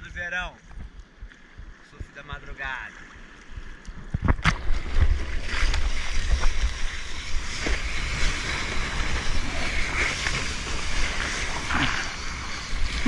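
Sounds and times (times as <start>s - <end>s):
water rushing and splashing: 1.6s - 13.0s
wind on microphone: 3.9s - 13.0s.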